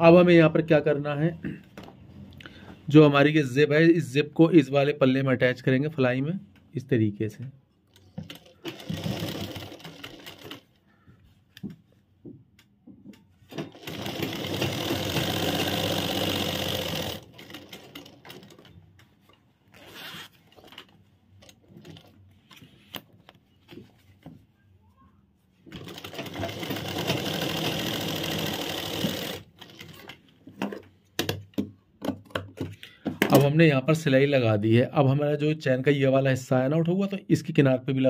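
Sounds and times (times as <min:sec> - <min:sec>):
sewing machine stitching: 0:08.1 - 0:10.7, 0:13.5 - 0:18.7, 0:25.7 - 0:30.2
fabric rustling: 0:18.5 - 0:26.0.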